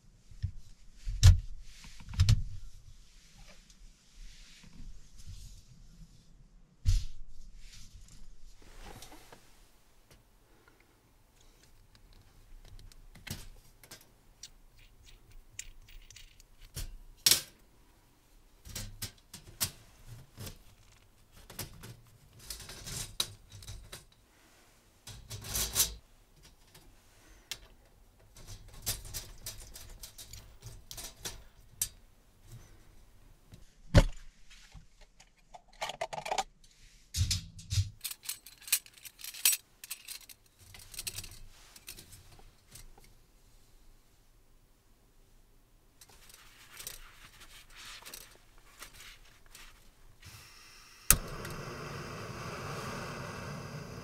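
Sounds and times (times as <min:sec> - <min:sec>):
metal hardware clinking on mesh: 0:38.0 - 0:42.9.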